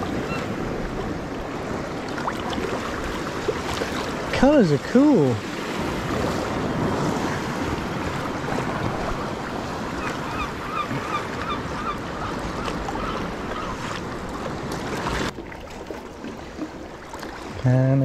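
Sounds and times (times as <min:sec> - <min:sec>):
water lapping and splashing: 0:00.0 - 0:18.0
wind on microphone: 0:05.4 - 0:15.3.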